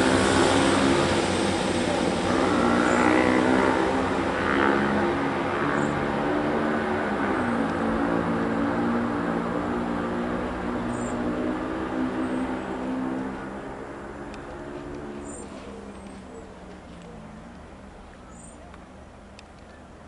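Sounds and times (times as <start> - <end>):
train diesel engines running: 0.0 - 5.8
rail and wheel noise: 0.0 - 20.0.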